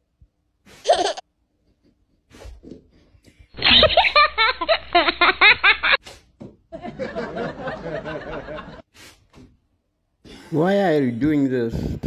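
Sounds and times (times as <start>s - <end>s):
high snickering laughter: 0.8s - 1.2s, 3.6s - 6.0s
people chuckling: 3.6s - 6.0s, 6.7s - 8.8s.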